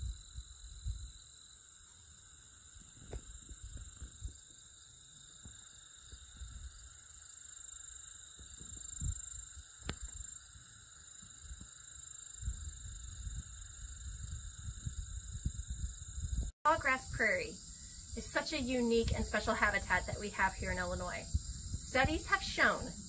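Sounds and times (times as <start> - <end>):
wind rumbling on microphone: 0.0 - 1.2, 2.8 - 4.6, 6.1 - 6.9, 8.4 - 10.2, 12.3 - 23.0
insect chorus: 0.0 - 23.0.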